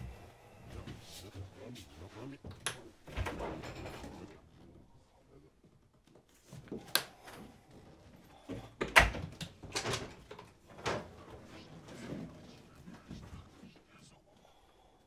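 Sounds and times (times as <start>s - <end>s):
doors knocking and clacking: 2.5s - 4.3s, 8.6s - 11.4s.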